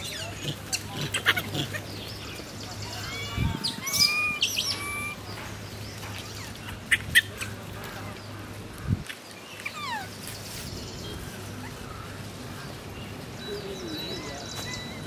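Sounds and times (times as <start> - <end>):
high squeaky animal calls: 0.0 - 2.0, 2.9 - 5.3.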